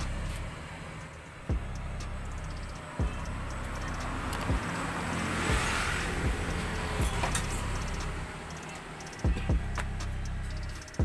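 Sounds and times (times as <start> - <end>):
electronic music: 0.0 - 11.0
low drone: 0.0 - 11.0
thumping kick drum beat: 1.5 - 2.2, 3.0 - 3.5, 5.5 - 7.3, 9.2 - 10.2.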